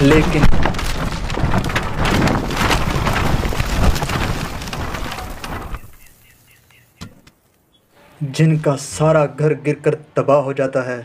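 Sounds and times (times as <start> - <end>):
rumble of falling debris: 0.0 - 6.9
timber cracking and splintering: 0.0 - 7.4.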